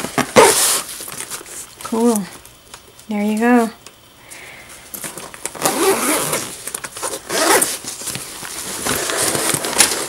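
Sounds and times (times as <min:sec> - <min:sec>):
zipper of bag pulled open: 0:05.6 - 0:06.5, 0:07.3 - 0:07.8.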